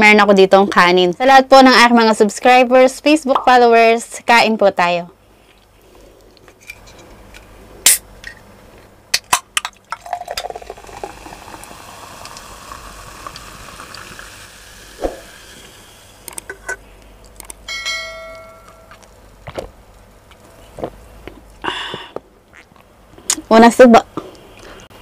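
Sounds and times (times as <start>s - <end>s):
soda can cracked open: 9.1s - 11.6s
soda pouring and fizzing: 9.7s - 16.3s
glass clink: 17.7s - 19.0s.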